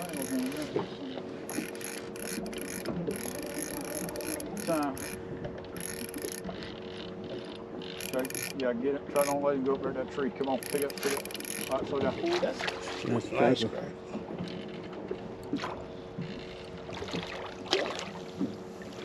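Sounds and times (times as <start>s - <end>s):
fishing reel ratcheting: 0.0s - 0.7s, 1.5s - 8.6s, 9.2s - 9.4s, 10.5s - 11.9s
steady low hum: 0.0s - 19.0s.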